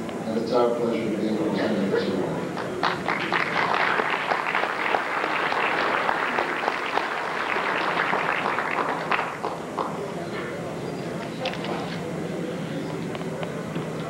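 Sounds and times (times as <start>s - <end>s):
audience applauding: 2.6s - 10.3s.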